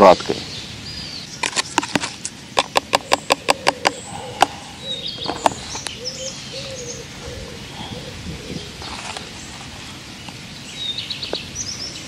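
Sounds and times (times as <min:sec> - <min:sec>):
birds calling faintly: 0:00.0 - 0:12.0
dove cooing: 0:02.8 - 0:09.4.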